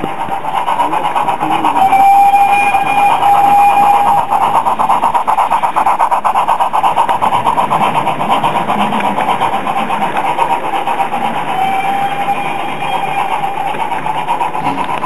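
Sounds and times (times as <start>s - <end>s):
model train wheels clattering: 0.0s - 15.0s.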